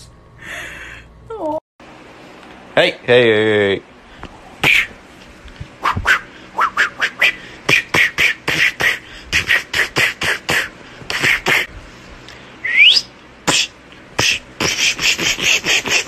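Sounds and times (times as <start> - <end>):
beatbox mouth sounds: 4.6 - 5.0, 5.8 - 11.7, 13.4 - 16.0
rising whistle: 5.8 - 7.4, 12.6 - 13.1.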